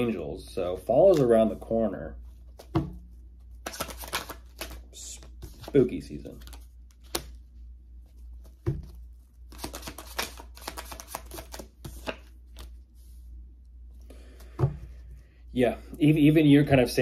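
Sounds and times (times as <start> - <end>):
cards being shuffled: 1.1 - 1.6, 2.3 - 7.4, 8.0 - 12.9.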